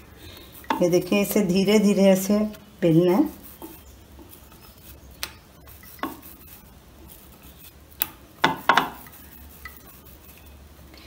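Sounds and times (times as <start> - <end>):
rolling pin knocking on board: 8.4 - 9.0.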